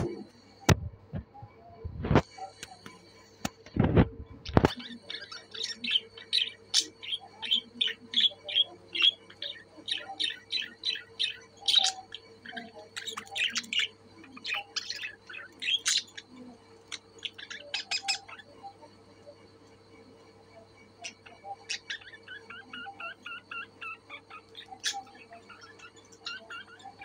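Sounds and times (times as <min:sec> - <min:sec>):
faint steady hum: 0:00.0 - 0:27.0
budgerigars chirping: 0:04.6 - 0:18.9, 0:21.0 - 0:27.0.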